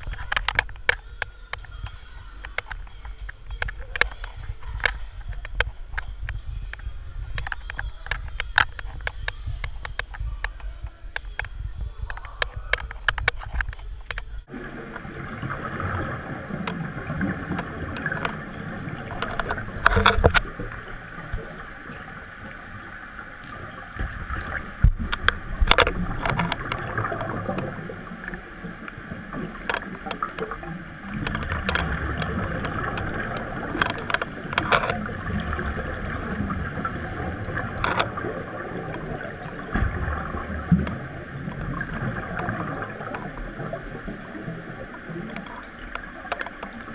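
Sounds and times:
exhaled bubbles gurgling: 0:00.0 - 0:46.9
divers breathing through regulators: 0:19.3 - 0:21.8, 0:27.2 - 0:29.0, 0:33.4 - 0:34.7, 0:36.3 - 0:37.8, 0:40.2 - 0:41.6, 0:43.0 - 0:45.0.

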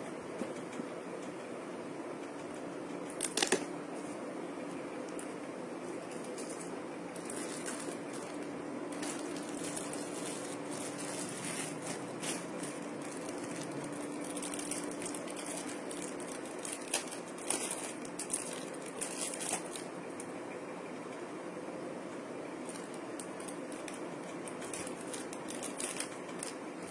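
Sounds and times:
faint hiss and hum: 0:00.0 - 0:26.9
plastic packets crinkling: 0:03.1 - 0:03.7, 0:05.1 - 0:20.3, 0:22.6 - 0:26.9.

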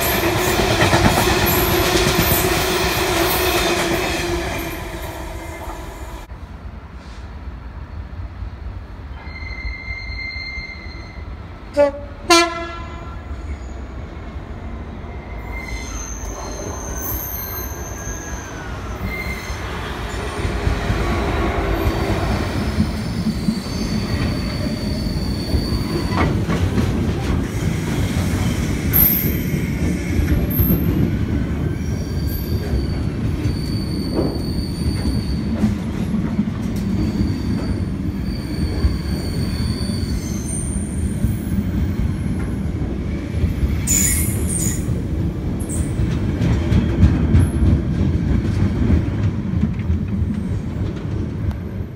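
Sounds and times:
high wheel squeals: 0:09.2 - 0:11.4, 0:15.1 - 0:20.4, 0:21.8 - 0:26.4, 0:31.7 - 0:35.5, 0:37.0 - 0:41.5.

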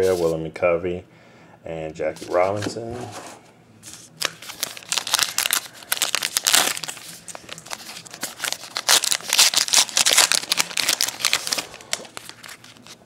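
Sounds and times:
wrapper crinkling and tearing: 0:04.2 - 0:13.0.

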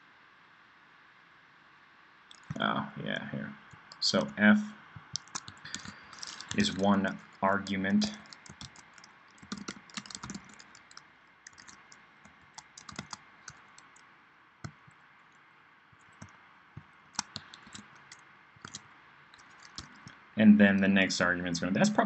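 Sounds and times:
computer keyboard typing: 0:05.0 - 0:15.0, 0:16.0 - 0:20.2.

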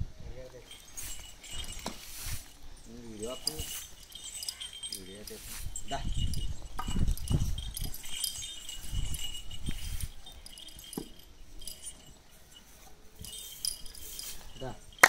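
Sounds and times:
collar ornaments jingling: 0:00.2 - 0:15.0
cattle thudding and scuffing: 0:00.6 - 0:12.2.

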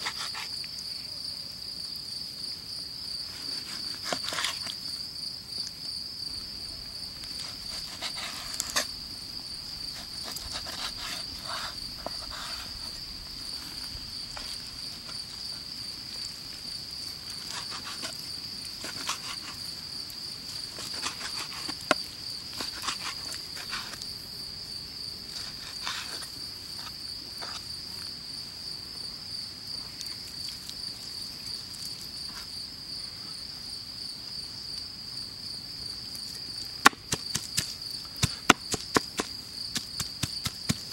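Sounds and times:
crickets trilling: 0:00.0 - 0:40.9
cleaver chopping on wooden board: 0:36.8 - 0:40.9.

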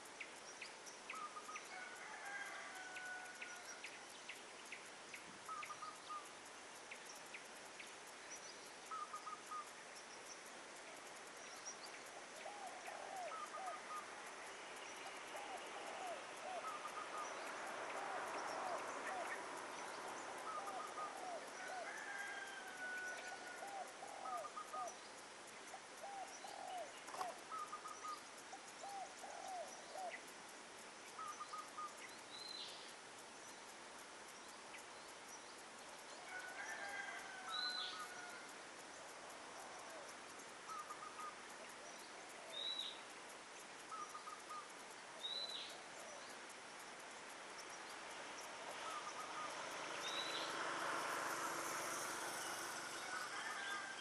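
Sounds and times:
broad rush of noise: 0:38.0 - 0:54.0.

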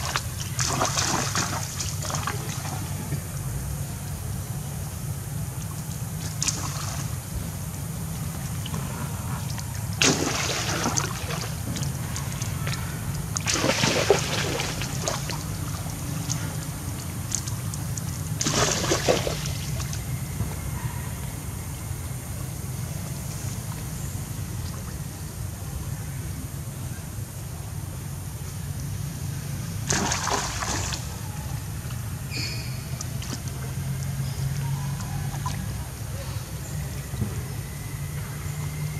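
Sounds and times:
muddy water sloshing and splashing: 0:00.0 - 0:03.4, 0:05.6 - 0:20.7, 0:29.7 - 0:36.1
steady low rumble: 0:00.0 - 0:29.9
short high chirp: 0:32.3 - 0:32.9.

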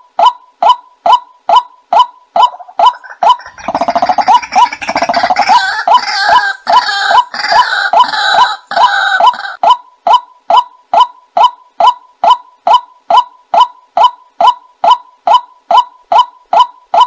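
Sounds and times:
gurgling croaking bird chatter: 0:02.4 - 0:09.6.

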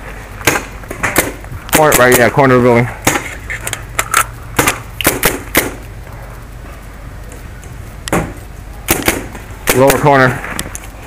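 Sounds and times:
paintball gun cracks: 0:03.1 - 0:05.8.

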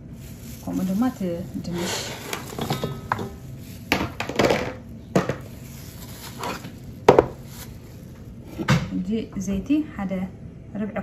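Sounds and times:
plastic wrapping rustling: 0:00.0 - 0:08.5
potatoes knocking into metal pan: 0:02.2 - 0:05.5.

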